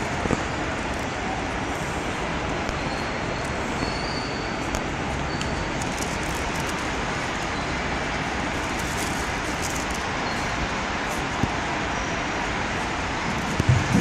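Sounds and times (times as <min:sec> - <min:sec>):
exhibition hall din: 0:13.2 - 0:14.0.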